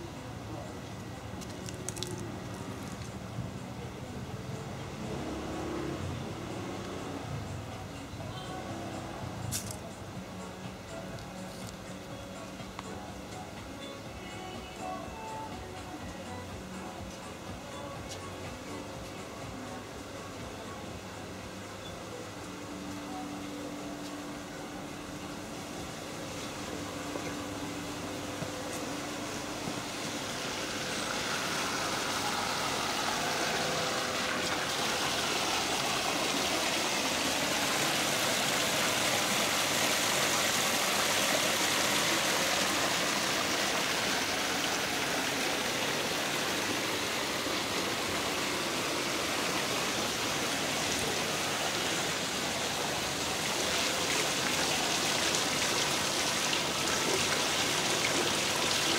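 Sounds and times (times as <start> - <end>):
water rushing over edge: 29.0 - 58.9.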